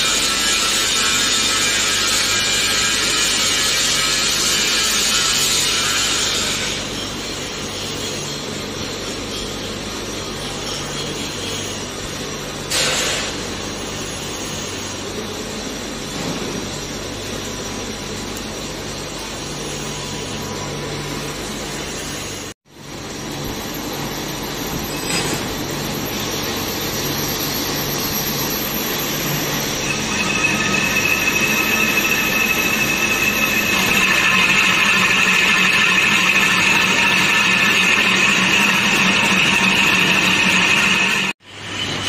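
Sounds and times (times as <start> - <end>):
lathe gearing hum: 22.8 - 42.0
lathe cutting grinding: 27.0 - 42.0
high squeal from cutting: 27.1 - 42.0.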